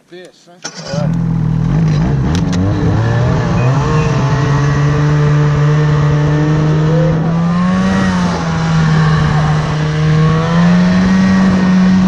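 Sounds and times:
snowmobile engines: 0:00.7 - 0:12.0.

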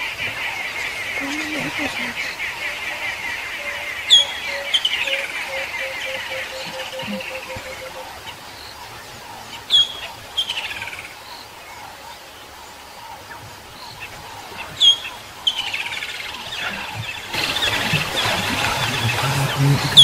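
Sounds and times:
soft outdoor hiss: 0:00.0 - 0:20.0
bird calling with falling trill: 0:03.5 - 0:08.2.

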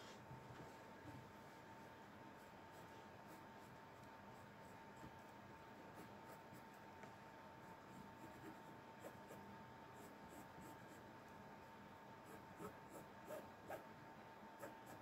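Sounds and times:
faint steady hum: 0:00.0 - 0:15.0
pencil scratching on fabric: 0:02.4 - 0:05.3, 0:05.9 - 0:06.8, 0:07.8 - 0:09.4, 0:10.0 - 0:11.1, 0:12.2 - 0:13.9, 0:14.6 - 0:15.0.

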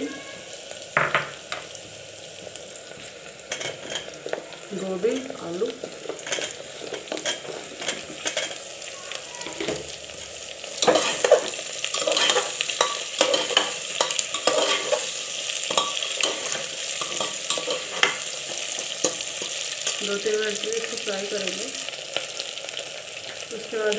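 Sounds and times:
vegetables sizzling in hot oil: 0:00.0 - 0:23.9
steel ladle scraping a pot: 0:06.1 - 0:08.6, 0:10.8 - 0:19.6.

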